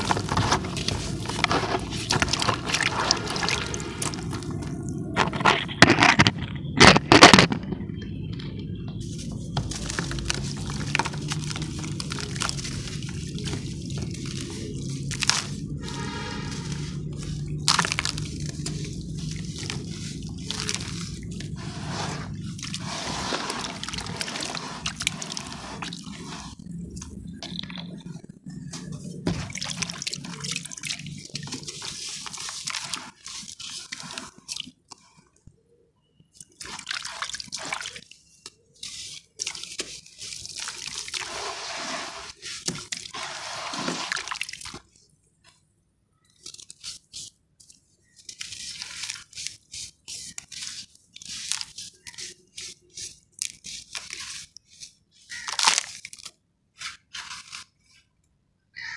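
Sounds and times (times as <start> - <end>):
hand stirring water: 0.0 - 6.2, 8.1 - 45.6, 46.2 - 56.3
crumbs falling into water: 0.0 - 7.6, 9.1 - 28.2, 28.8 - 35.0, 36.3 - 45.0, 48.0 - 56.4
hands swishing through wet sand: 9.2 - 26.6, 39.8 - 44.4
sand crumbling into water: 39.4 - 44.9.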